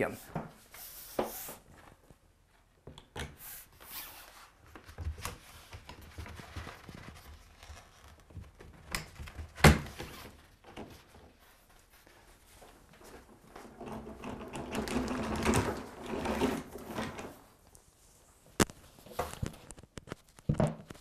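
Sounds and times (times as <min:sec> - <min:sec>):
vinyl backdrop rustling and crinkling: 0:03.9 - 0:13.8, 0:15.4 - 0:21.0.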